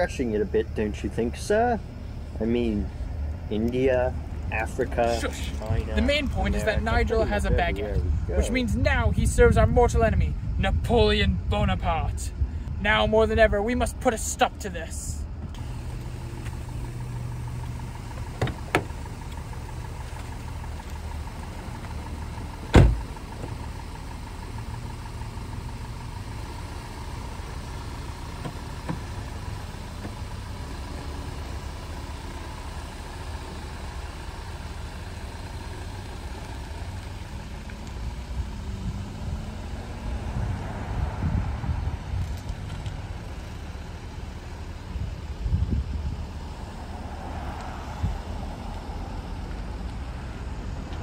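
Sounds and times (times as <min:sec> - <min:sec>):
car engine idling: 0:00.0 - 0:51.0
car door shutting: 0:18.1 - 0:19.4, 0:22.4 - 0:23.6, 0:28.3 - 0:29.2.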